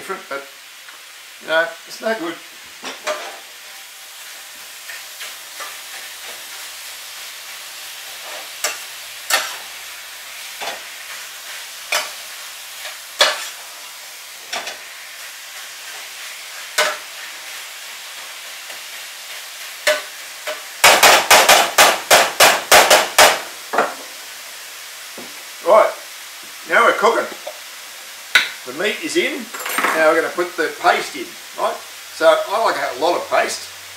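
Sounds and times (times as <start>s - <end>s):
chicken sizzling in a frying pan: 0.0s - 33.9s
utensil scraping a pan: 2.8s - 3.8s.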